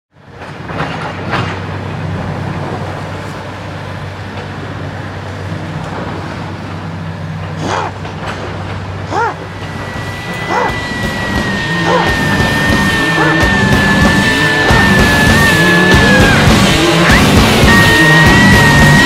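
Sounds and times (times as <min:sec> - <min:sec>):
traffic noise: 0:00.1 - 0:19.0
rising and falling yelp: 0:07.6 - 0:08.1, 0:09.0 - 0:19.0.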